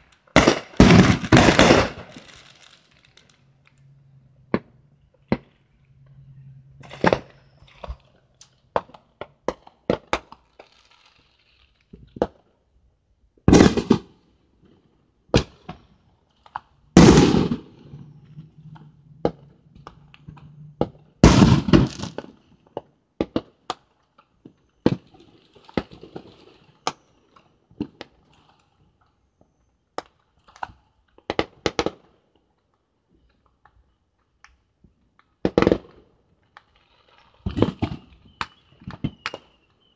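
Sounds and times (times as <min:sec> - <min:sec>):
fireworks cracks and pops: 0:00.0 - 0:05.8, 0:06.8 - 0:12.8, 0:13.4 - 0:39.9
fireworks booms echoing: 0:00.3 - 0:03.3, 0:13.5 - 0:14.2, 0:16.9 - 0:18.5, 0:21.2 - 0:22.4.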